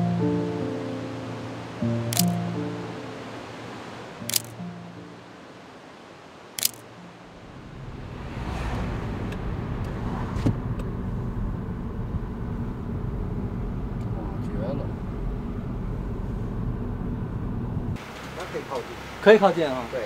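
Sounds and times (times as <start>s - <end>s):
faint music: 0.0s - 5.6s
car engine and road noise: 0.0s - 20.0s
camera shutter click: 2.1s - 2.4s, 4.2s - 4.6s, 6.6s - 6.8s
light clicks: 2.1s - 2.4s, 4.3s - 4.6s, 6.6s - 6.9s.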